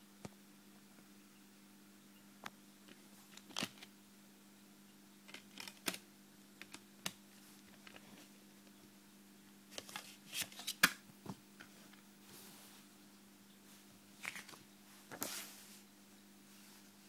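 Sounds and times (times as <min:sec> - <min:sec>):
plastic and paper rustling: 0:09.7 - 0:11.4.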